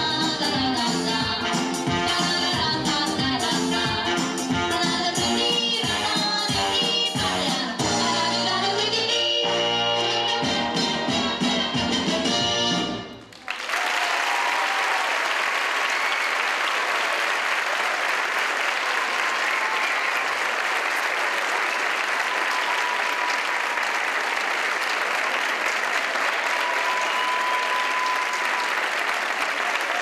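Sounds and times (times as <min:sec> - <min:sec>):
audience clapping: 0:13.2 - 0:30.0.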